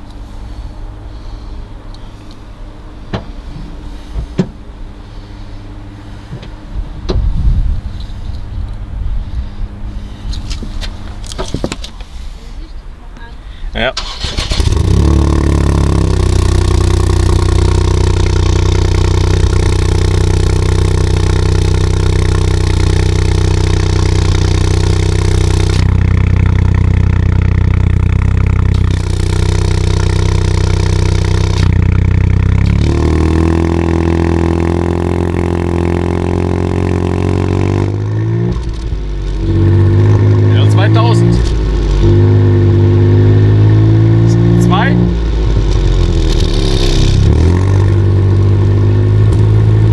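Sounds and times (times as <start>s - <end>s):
car engine exhaust running: 0.0s - 12.5s, 14.0s - 49.9s.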